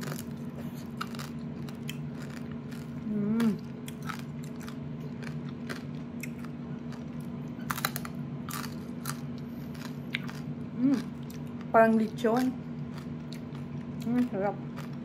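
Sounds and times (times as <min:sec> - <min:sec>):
crunchy chewing: 0:00.0 - 0:15.0
person saying mmm: 0:03.0 - 0:03.7, 0:10.8 - 0:11.1.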